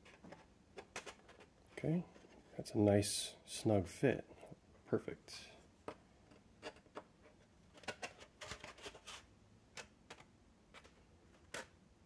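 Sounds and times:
hollow plastic part handled: 0.0 - 2.5.

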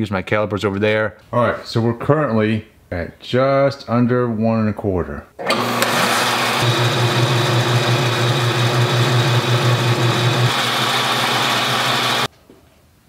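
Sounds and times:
lathe whirring: 5.4 - 12.3.

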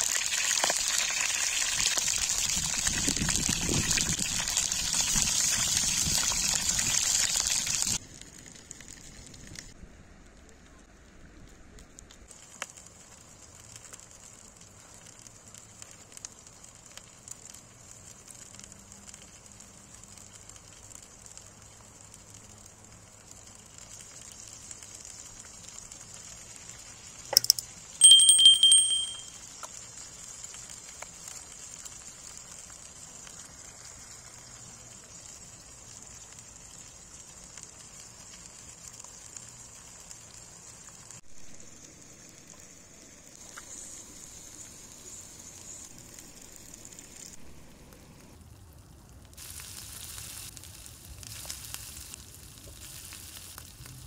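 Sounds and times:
butter sizzling in a pan: 0.0 - 9.0, 12.3 - 47.4, 48.4 - 54.0
wood fire crackling: 0.0 - 54.0
loud ringing tone: 28.0 - 29.3.

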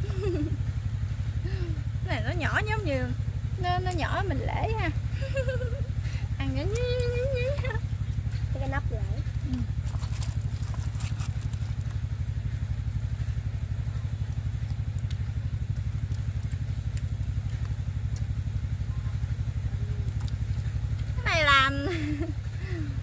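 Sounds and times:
small engine idling: 0.0 - 23.0
clicks of clam shells handled: 9.5 - 12.0.

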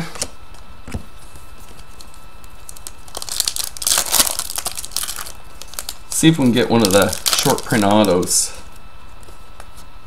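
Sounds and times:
foil wrapper crinkling: 1.6 - 8.6.

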